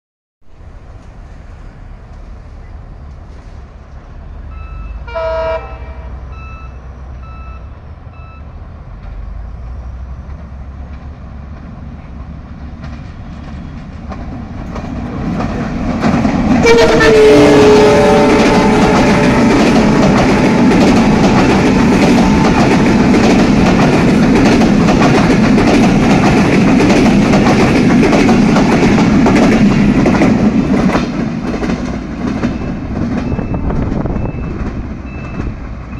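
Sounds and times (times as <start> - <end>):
train rumbling past: 0.4 - 35.9
wheels clickety-clack over rail joints: 0.6 - 5.0, 8.7 - 35.9
train horn: 4.5 - 6.8, 16.6 - 23.0.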